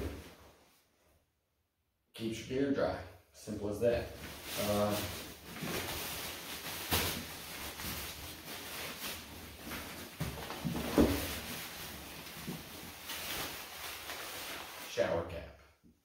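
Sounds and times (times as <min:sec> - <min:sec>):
rain cover rustling: 0:04.0 - 0:15.1.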